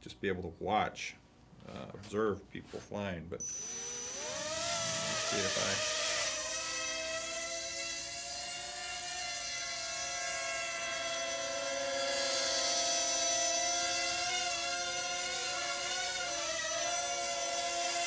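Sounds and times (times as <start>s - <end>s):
drone propellers whining: 3.4s - 17.2s.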